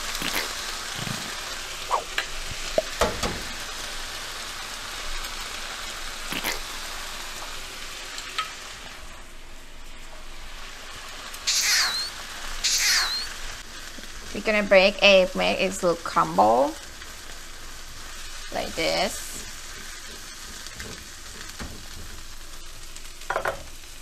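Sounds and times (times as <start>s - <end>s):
food sizzling in frying pan: 0.0s - 24.0s
eggs cracking clicks: 6.3s - 6.6s.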